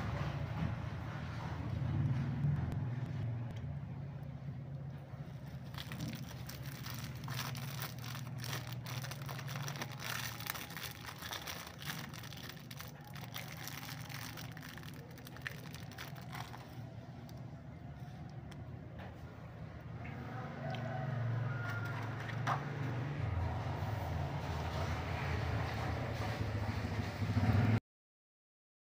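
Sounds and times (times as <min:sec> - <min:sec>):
plastic bag crinkling: 0:05.4 - 0:17.4.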